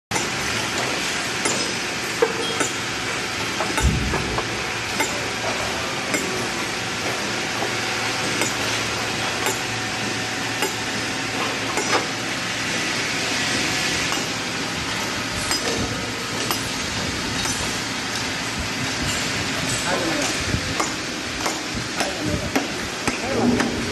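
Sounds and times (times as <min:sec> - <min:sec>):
mallet striking steel chisel: 0:01.4 - 0:02.8, 0:03.6 - 0:05.2, 0:08.2 - 0:08.7, 0:10.6 - 0:10.8, 0:14.1 - 0:14.3, 0:15.5 - 0:16.7.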